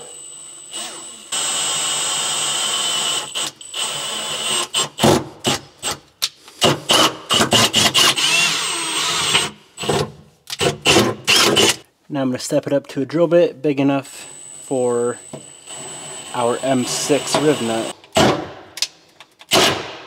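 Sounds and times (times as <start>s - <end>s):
cordless drill boring into metal: 0.0s - 5.0s, 6.9s - 9.9s, 10.6s - 11.8s, 14.4s - 17.9s.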